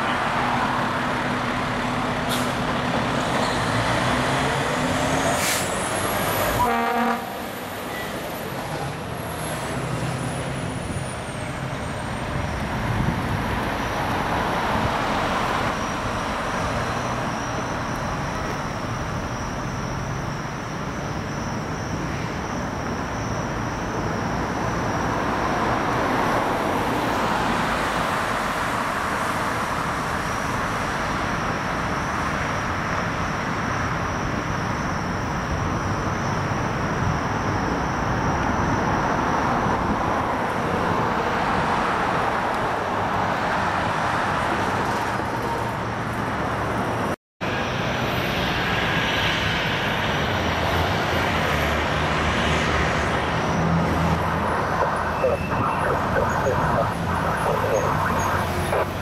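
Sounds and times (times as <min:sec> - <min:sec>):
traffic engines and tyres on road: 0:00.0 - 0:59.0
thin high whine: 0:53.4 - 0:59.0.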